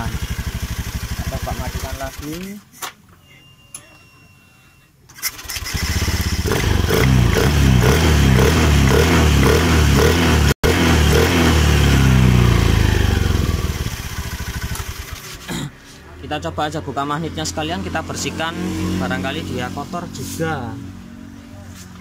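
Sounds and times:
scooter engine running: 0.0s - 2.4s, 5.4s - 15.5s.

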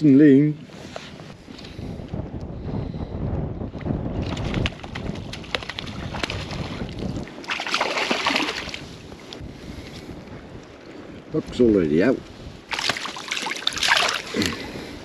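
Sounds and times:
wind buffeting microphone: 0.0s - 15.0s
fish splashing at surface: 7.4s - 8.8s, 12.7s - 14.6s.

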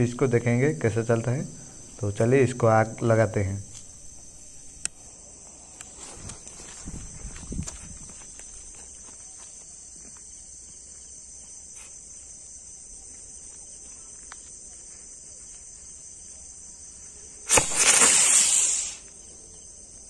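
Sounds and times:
crickets chirring: 0.0s - 20.0s
firecracker hissing burst: 17.4s - 19.2s.

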